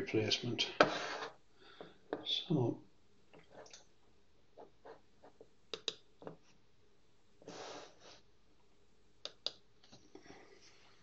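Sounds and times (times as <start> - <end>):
computer mouse clicks: 5.7 - 6.0, 9.2 - 9.6.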